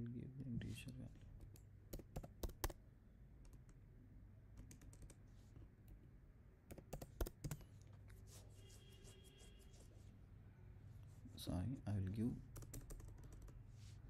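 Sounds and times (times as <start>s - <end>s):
computer keyboard keystrokes: 1.4s - 2.8s, 4.6s - 5.2s, 6.7s - 7.6s, 12.5s - 13.6s.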